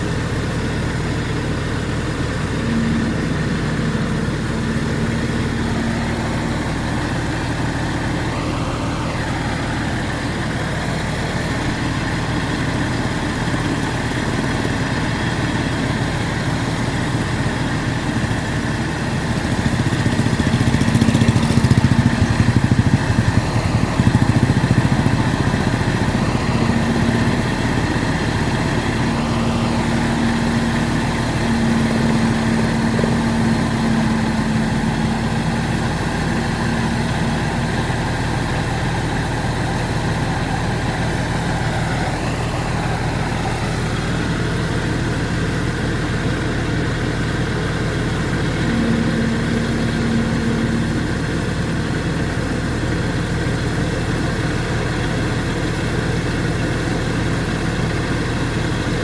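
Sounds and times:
combine harvester engine running: 0.0s - 59.0s
steady hum: 47.5s - 53.4s.

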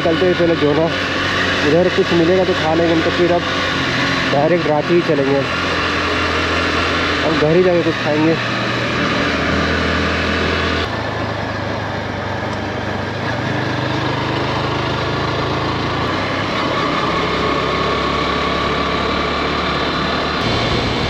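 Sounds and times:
motorcycle engine running: 0.0s - 21.0s.

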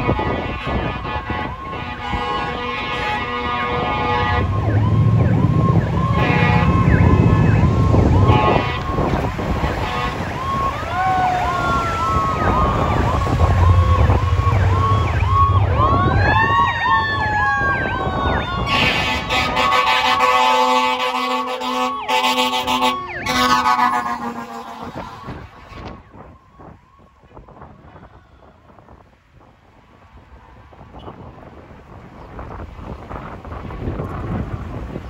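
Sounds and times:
deep horn: 0.0s - 10.8s, 11.4s - 26.1s
fire engine siren yelping: 0.0s - 29.0s.

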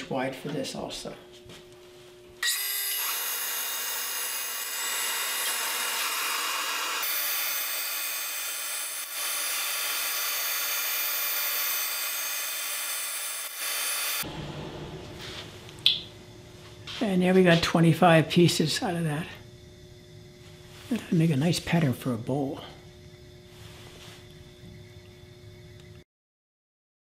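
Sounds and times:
high-pitched bandsaw whine: 2.4s - 14.3s.

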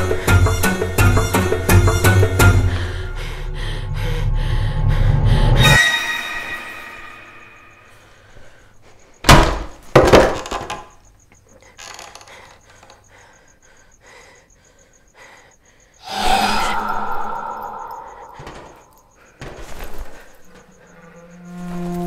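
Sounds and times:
knocks and creaks: 9.4s - 13.2s, 17.2s - 22.0s
loud sustained swell: 16.0s - 18.4s.

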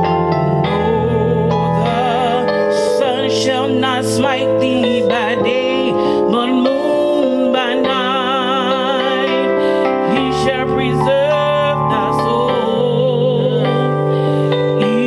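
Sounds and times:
woman singing with vibrato: 0.0s - 14.1s, 14.8s - 15.0s
sustained keyboard chords: 0.0s - 15.0s.

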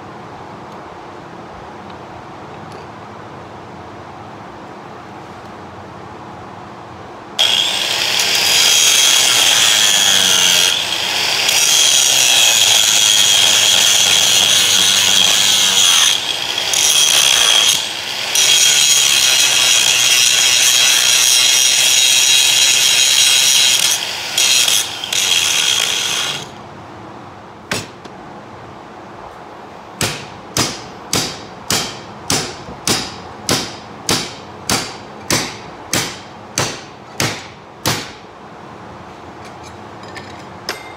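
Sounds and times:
angle grinder cutting metal: 7.4s - 26.6s.

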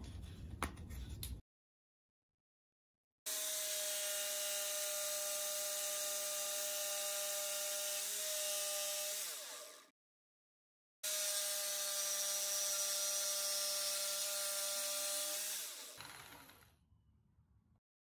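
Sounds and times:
jigsaw cutting wood: 3.3s - 9.9s, 11.0s - 16.7s.

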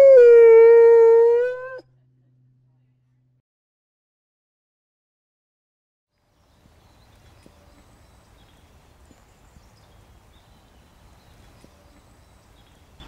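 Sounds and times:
steady low rumble: 1.8s - 3.4s.

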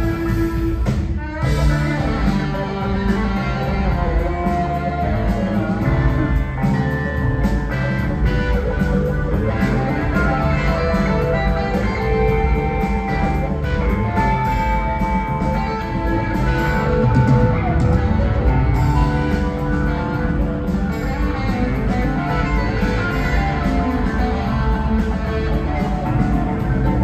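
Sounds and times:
live rock band playing: 0.0s - 27.0s.

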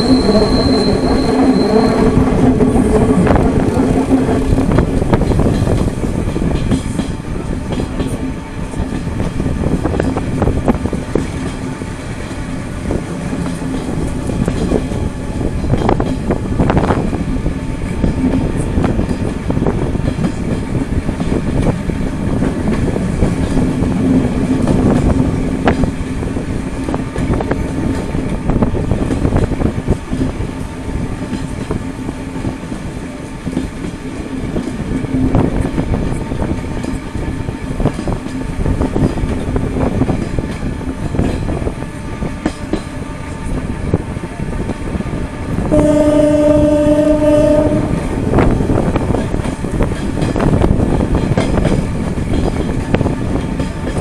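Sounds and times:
train rumbling: 0.0s - 54.0s
wheels clattering on rails: 0.0s - 54.0s
train horn blast: 45.6s - 48.5s.

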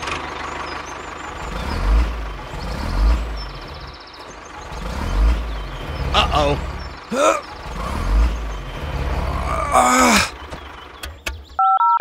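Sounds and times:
falling groan-like voice: 6.1s - 8.0s, 9.2s - 10.4s
phone keypad beeps: 11.6s - 12.0s.

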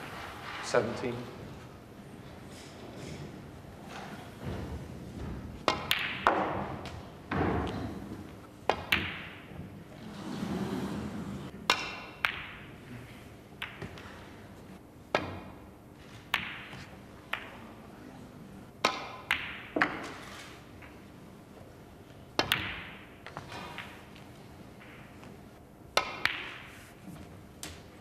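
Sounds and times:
snooker balls clicking: 5.4s - 17.8s, 18.8s - 21.1s, 22.0s - 28.0s.

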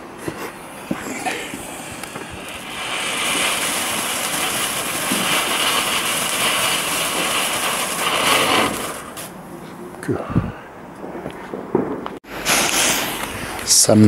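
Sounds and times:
firework fountain hissing: 0.0s - 9.6s, 12.2s - 14.0s.

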